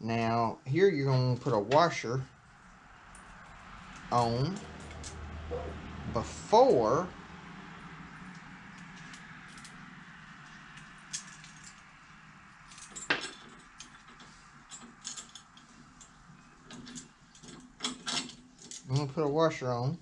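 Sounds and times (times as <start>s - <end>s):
small metal hardware clinking: 10.4s - 11.9s, 12.7s - 19.1s.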